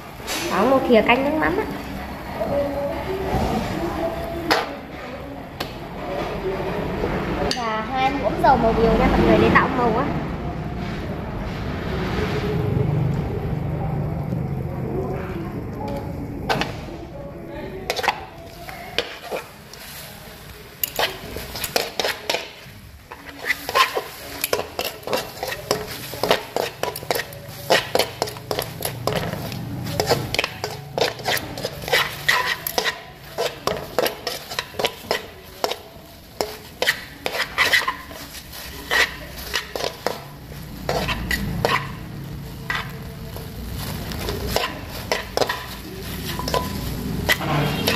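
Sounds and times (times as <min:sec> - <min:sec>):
metal tongs clinking on wok: 0:20.7 - 0:38.2, 0:42.7 - 0:47.9.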